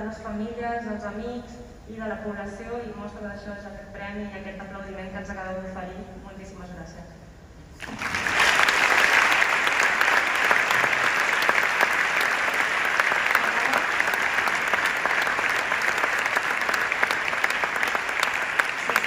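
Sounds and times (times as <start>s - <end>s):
audience applauding: 7.8s - 19.0s.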